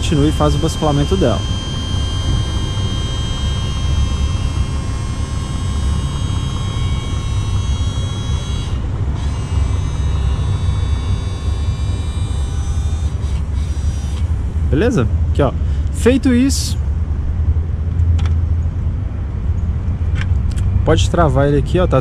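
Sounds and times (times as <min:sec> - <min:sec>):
hydraulic pump humming and whining: 0:00.0 - 0:18.5.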